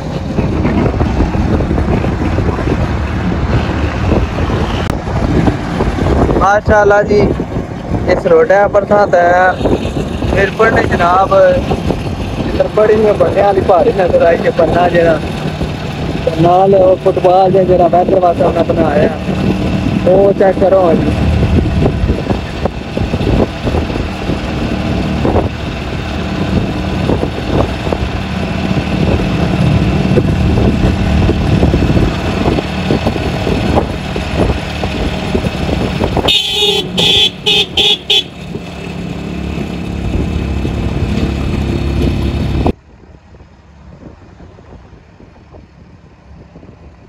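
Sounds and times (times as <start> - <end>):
vehicle road noise and engine: 0.0 - 47.0
vehicle horn honking: 36.2 - 38.4.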